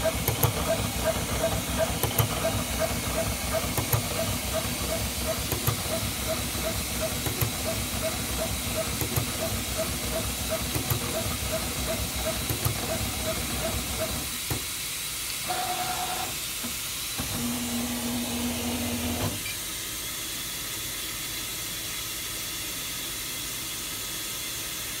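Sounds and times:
cutting plotter motors: 0.0s - 14.6s, 15.4s - 19.6s.

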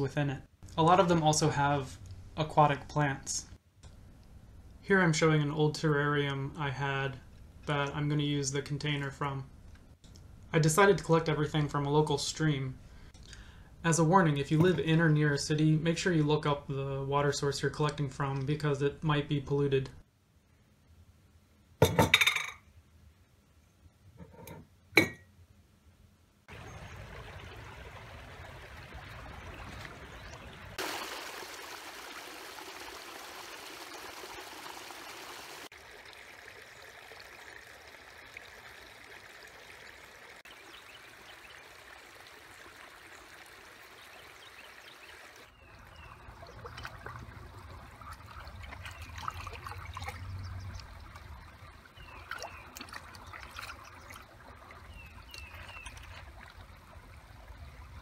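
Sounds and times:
stream babbling over stones: 26.5s - 58.0s
cup dipping into water: 45.9s - 56.8s.

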